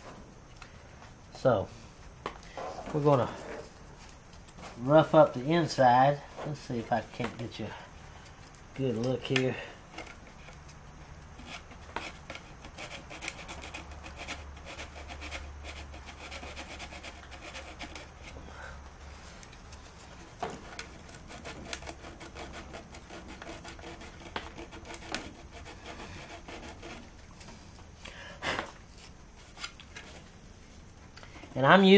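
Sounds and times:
sandpaper scratching on plastic: 11.4s - 18.4s, 20.8s - 27.2s.

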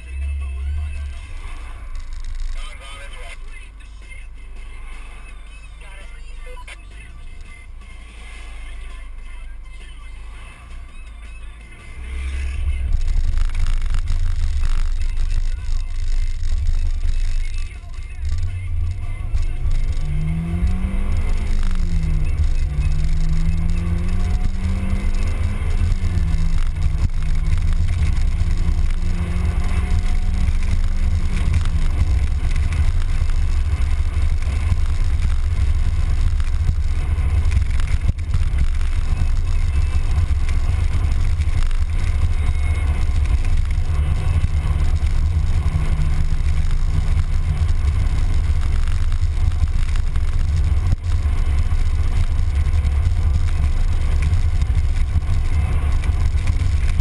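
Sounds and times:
car engine rumble: 0.0s - 57.0s
engine tone climbing: 0.0s - 57.0s
road noise: 0.0s - 57.0s.

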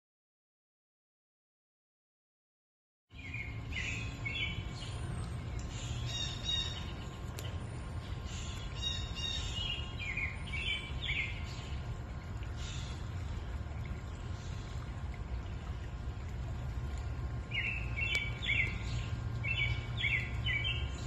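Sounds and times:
birds chirping: 3.1s - 16.1s, 17.3s - 21.0s
stream flowing over stones: 9.8s - 21.0s.

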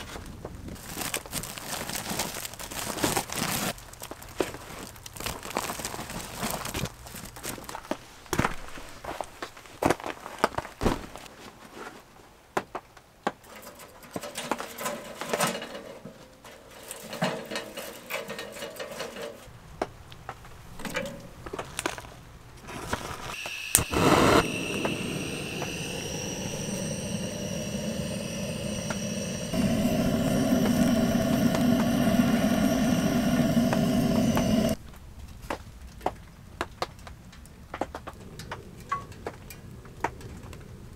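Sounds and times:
gas torch hissing: 22.7s - 34.8s
torch igniter click: 23.3s - 34.8s.

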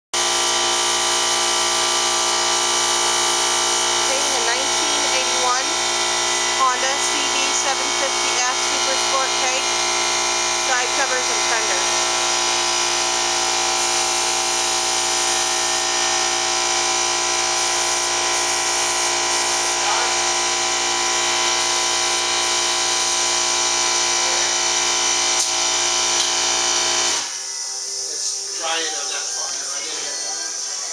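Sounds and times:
paint spray gun hissing: 0.2s - 24.4s
air compressor whining: 0.2s - 30.9s.

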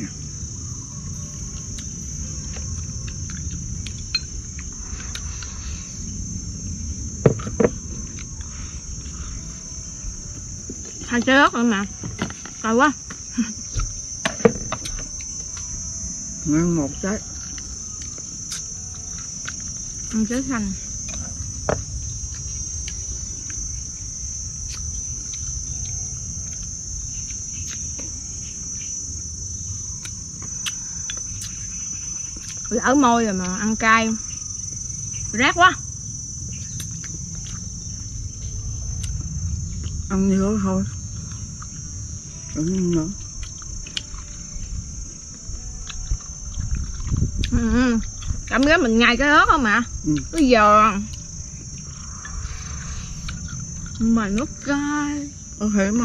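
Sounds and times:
insects shrilling: 0.0s - 56.0s
low background rumble: 0.0s - 56.0s.

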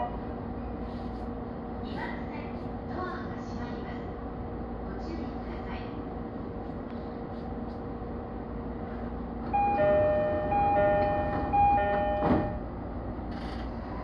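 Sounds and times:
train equipment humming: 0.0s - 14.0s
two-tone electronic chime: 9.6s - 12.6s.

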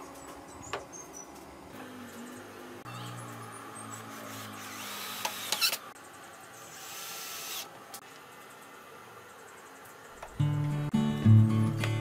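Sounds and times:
cordless drill running: 4.1s - 5.8s, 6.7s - 7.7s.

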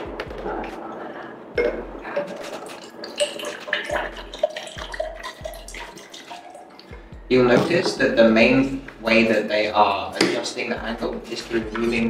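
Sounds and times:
bottle knock: 1.6s - 2.3s, 7.5s - 8.1s
water pouring into a glass: 1.6s - 7.0s.

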